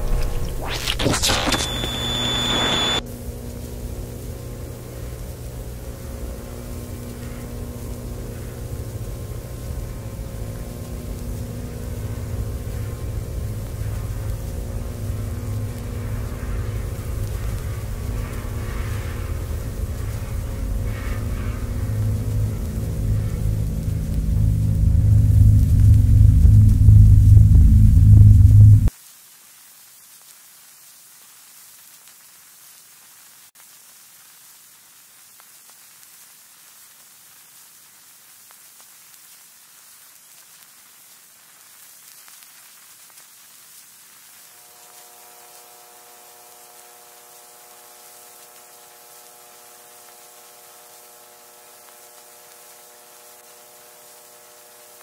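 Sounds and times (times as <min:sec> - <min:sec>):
tape hiss and static: 0:00.0 - 0:55.0
quiet held chord: 0:19.4 - 0:28.9.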